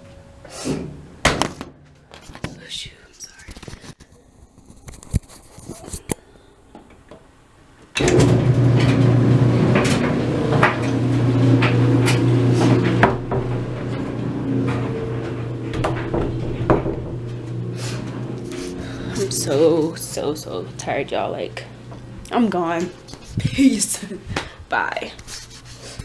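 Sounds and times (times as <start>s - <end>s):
clothes dryer running: 7.9s - 24.6s
clothes tumbling knocks: 9.7s - 17.6s.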